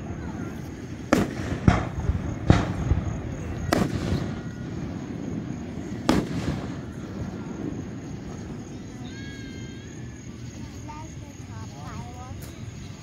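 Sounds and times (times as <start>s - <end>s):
firework shells booming: 0.0s - 9.0s.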